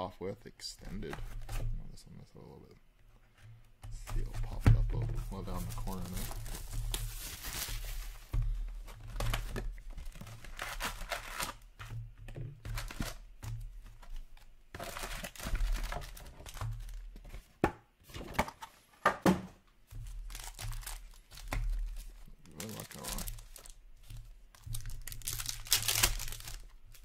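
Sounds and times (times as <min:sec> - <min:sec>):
foil packs rustling and crinkling: 0:03.9 - 0:17.5, 0:19.9 - 0:27.0.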